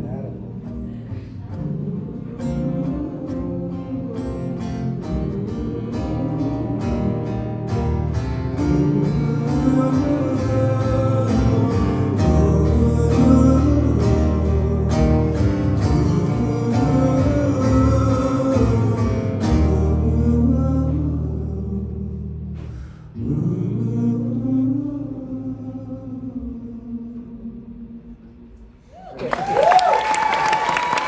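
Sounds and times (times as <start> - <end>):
man singing: 0.0 - 7.9, 8.5 - 28.2
acoustic guitar strumming: 0.0 - 23.8.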